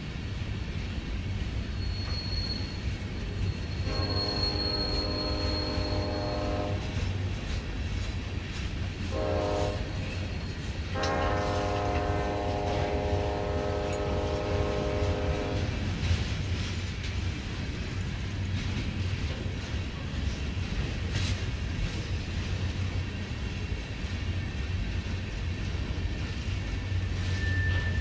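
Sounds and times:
train cars rolling with low rumble: 0.0 - 28.0
high wheel squeal: 1.7 - 6.6, 10.0 - 10.9, 26.8 - 28.0
locomotive air horn blasts: 3.8 - 7.2, 9.1 - 15.8.

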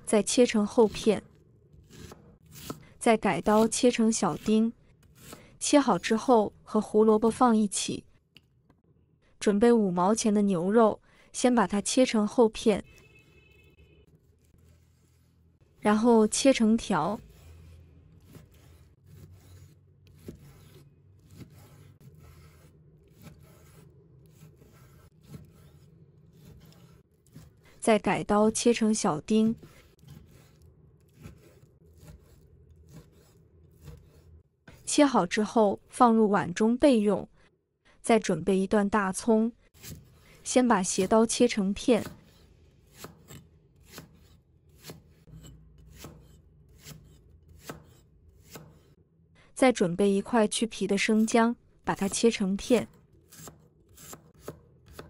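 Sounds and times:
cleaver slicing through meat: 17.1 - 27.6, 29.6 - 34.4
cleaver chopping on wooden board: 53.3 - 55.0.

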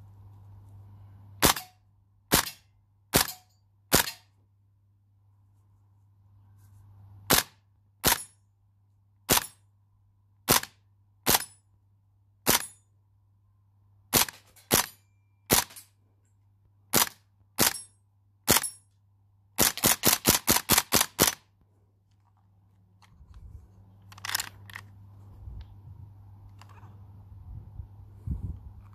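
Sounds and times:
airsoft gun shots: 1.4 - 4.3, 7.3 - 8.3, 9.3 - 9.6, 10.5 - 11.5, 14.1 - 14.9
gun handling noises: 22.1 - 25.3.

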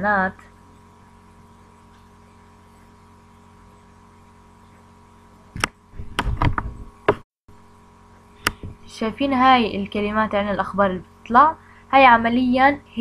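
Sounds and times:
faint electrical hum: 0.0 - 13.0
keyboard keys being struck: 6.0 - 7.2.

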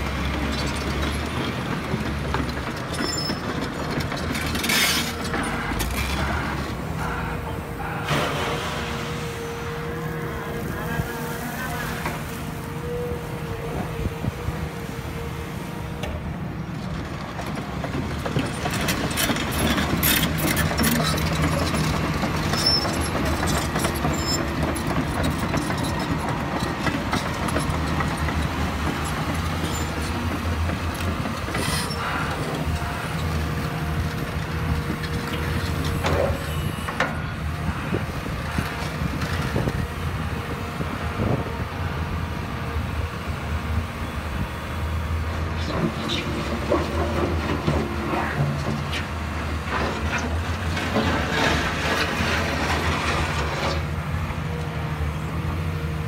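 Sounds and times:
excavator diesel engine running: 0.0 - 56.0
machine knocks and clanks: 0.4 - 6.2.

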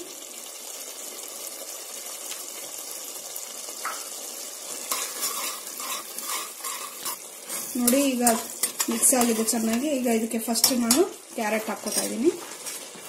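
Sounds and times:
sauce sizzling in a pot: 0.0 - 13.0
metal ladle scraping a pan: 4.8 - 13.0.

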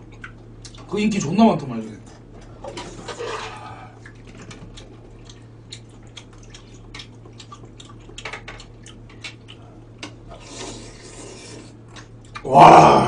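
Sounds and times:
slurping and chewing: 2.7 - 12.5.

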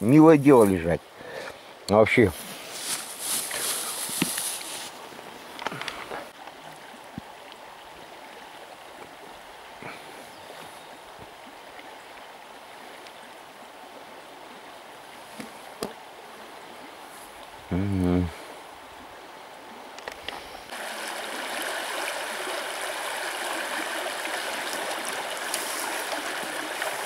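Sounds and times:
river flowing over stones: 0.0 - 27.0
plastic bag rustling: 2.6 - 5.0.

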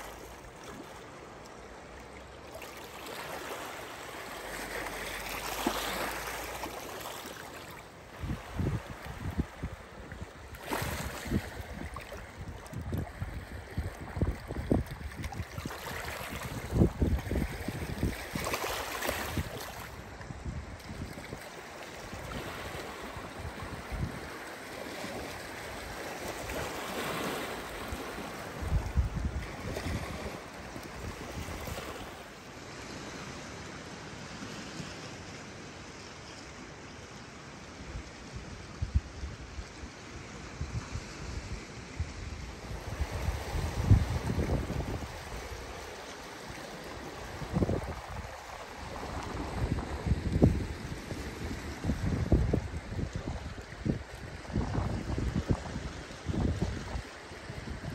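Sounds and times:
waves lapping on rocky shore: 0.0 - 57.9
wind buffeting microphone: 8.2 - 21.4, 27.9 - 31.8, 40.6 - 57.9.

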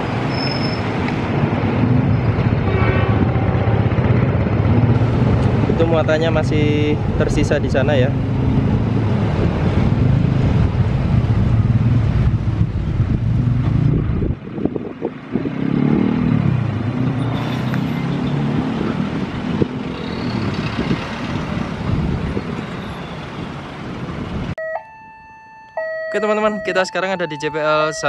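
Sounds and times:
road traffic: 0.0 - 28.0
motor scooters passing: 15.3 - 23.7.

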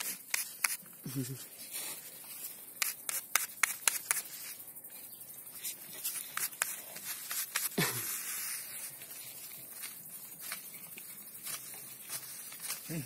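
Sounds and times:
hand patting artificial turf: 2.7 - 4.6, 5.7 - 13.0.

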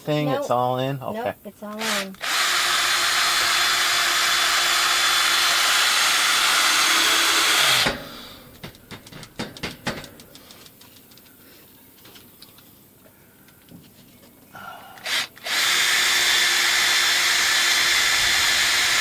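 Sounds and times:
power tool running: 1.8 - 8.3, 15.0 - 19.0.

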